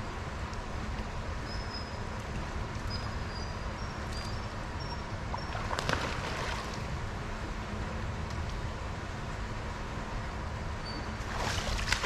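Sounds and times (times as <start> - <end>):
low background rumble: 0.0 - 12.0
bird splashing into water: 5.5 - 6.8, 11.3 - 12.0.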